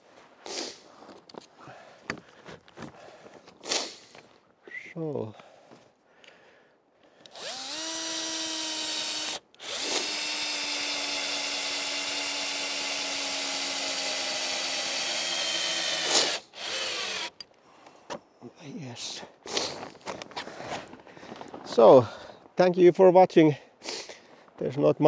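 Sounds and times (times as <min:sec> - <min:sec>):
power drill running on wood: 0:07.3 - 0:17.4.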